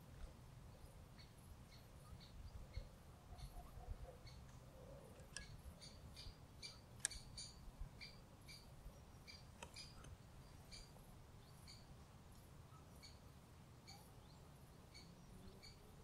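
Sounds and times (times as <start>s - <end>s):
sharp clicks: 7.0s - 7.5s, 9.6s - 10.2s.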